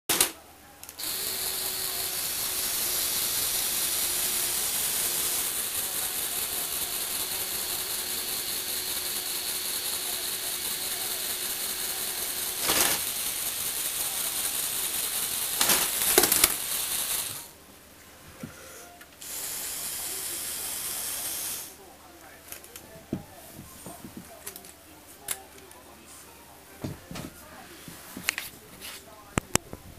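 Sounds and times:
toy motors whirring plastic gears: 0.1s - 17.5s, 19.2s - 21.8s.

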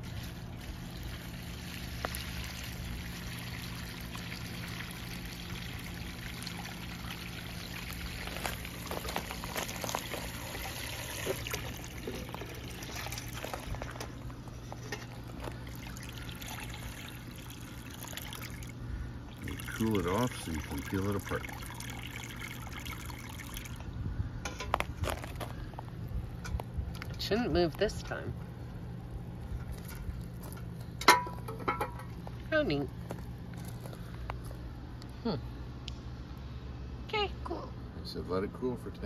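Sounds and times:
hose water pouring into pot: 0.0s - 23.8s.

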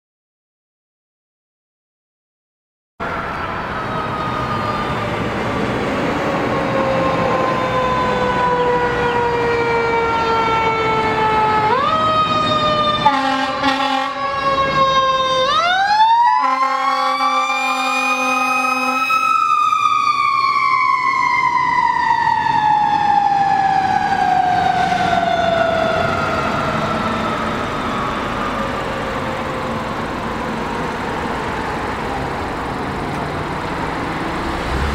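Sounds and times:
mechanical siren wailing: 3.0s - 32.8s
air horn blasts: 13.0s - 14.3s, 16.4s - 19.2s.

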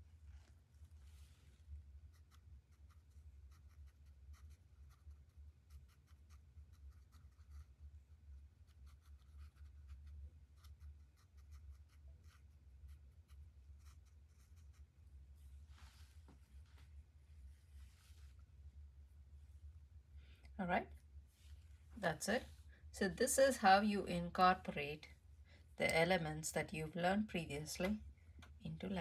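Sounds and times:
low hum: 0.0s - 29.0s
paintbrush dabbing on paper: 1.1s - 16.0s.

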